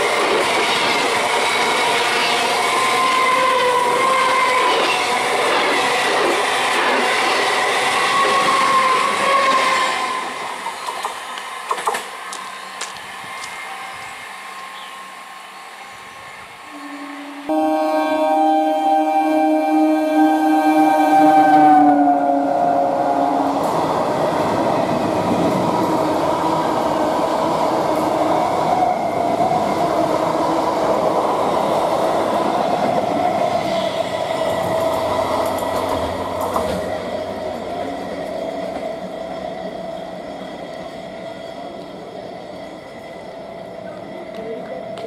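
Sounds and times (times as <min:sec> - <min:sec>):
loud train horn: 0:16.7 - 0:24.2
train coaches rushing past: 0:20.7 - 0:45.0.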